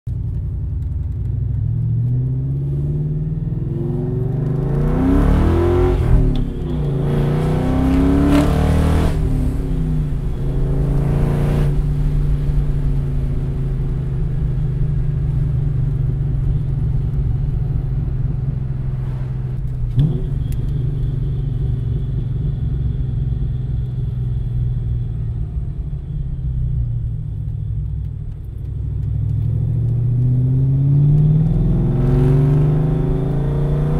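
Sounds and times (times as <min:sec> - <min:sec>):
car engine accelerating through gears: 0:01.2 - 0:13.5, 0:28.6 - 0:33.9.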